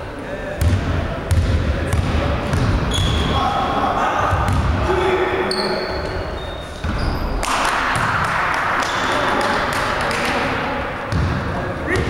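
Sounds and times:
sneaker squeaks: 2.5 - 3.5, 5.5 - 7.4.

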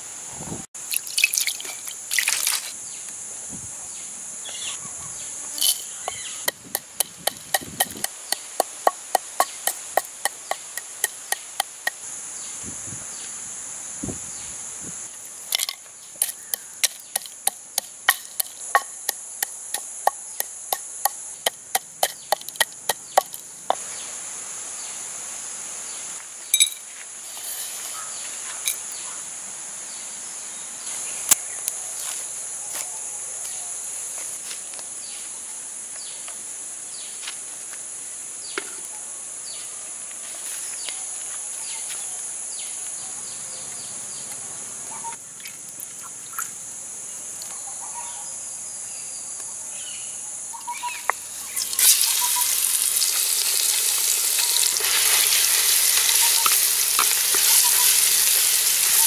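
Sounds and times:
insects chirring: 0.0 - 59.0
wooden pestle pounding in mortar: 6.4 - 12.0, 15.6 - 23.4.

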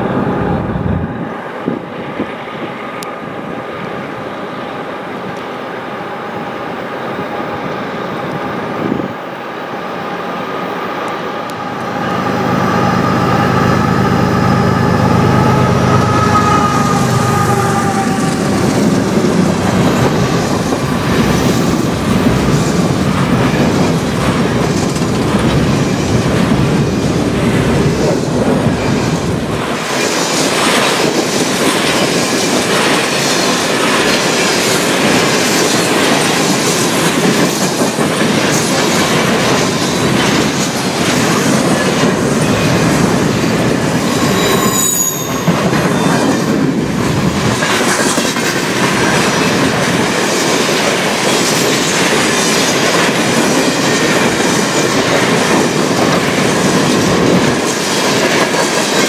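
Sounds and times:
train wheels rumbling on rail: 0.0 - 59.0
high-pitched wheel squeal: 11.6 - 18.9, 44.1 - 46.4.

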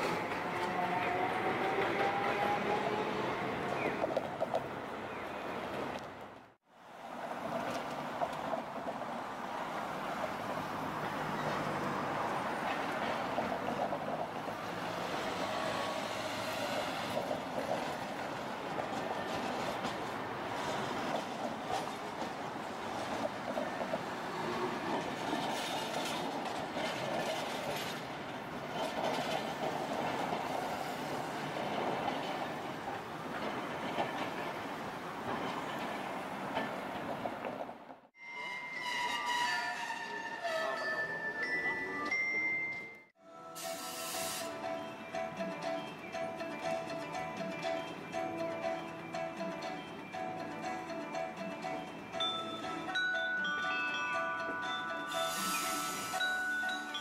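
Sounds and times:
streetcar running on rails: 0.0 - 57.0
cars driving past: 6.8 - 17.8.

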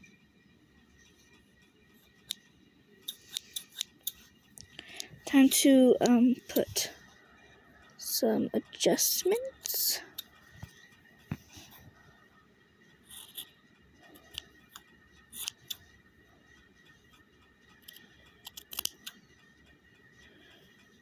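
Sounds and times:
scissors snipping fabric: 15.4 - 15.8, 17.8 - 19.2.

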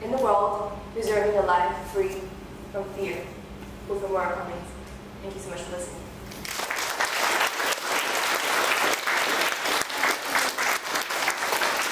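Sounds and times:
audience applauding: 6.4 - 11.9.

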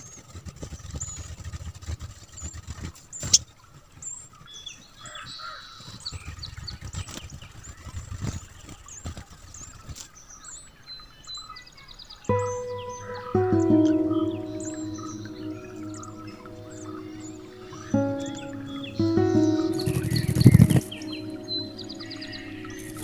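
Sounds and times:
bird chirping: 12.3 - 23.0.

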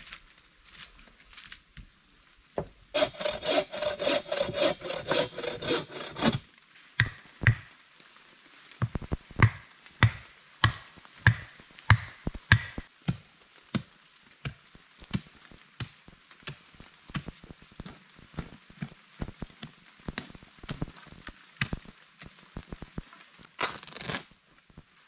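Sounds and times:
hand saw cutting wood: 3.0 - 6.4
chopping blows on wood: 7.0 - 7.7, 8.8 - 13.2.

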